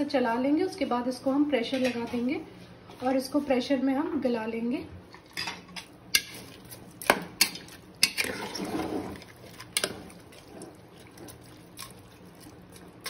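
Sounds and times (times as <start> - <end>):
spoon stirring wet mixture: 5.1 - 13.0.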